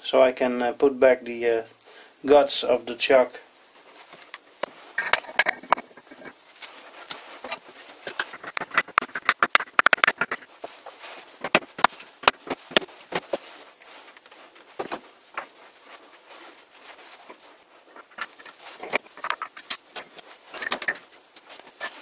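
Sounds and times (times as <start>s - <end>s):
light metallic clicks and clinks: 4.8s - 6.4s.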